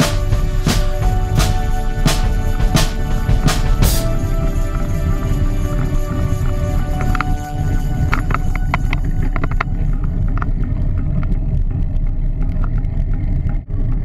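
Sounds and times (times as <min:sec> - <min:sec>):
bicycle rolling vibration: 0:04.2 - 0:14.0.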